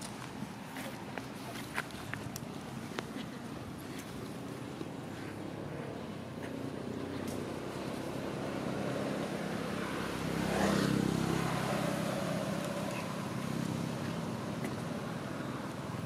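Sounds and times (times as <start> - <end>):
motor engine passing by: 5.2 - 16.0.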